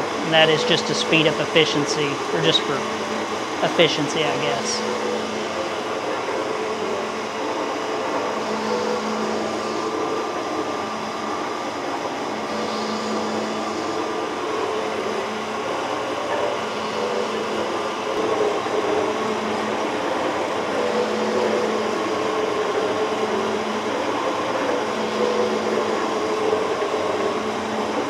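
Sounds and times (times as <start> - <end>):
metal shaper running: 0.0 - 28.0.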